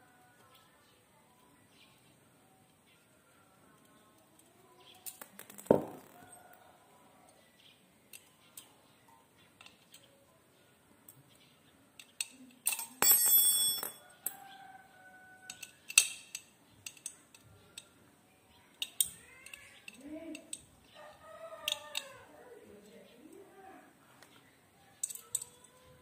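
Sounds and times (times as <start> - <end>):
metallic clicks and clinks: 12.0 - 14.6, 15.5 - 18.0, 18.7 - 20.7, 21.7 - 22.2, 24.9 - 25.8
bright ringing metal clinking: 12.7 - 14.4.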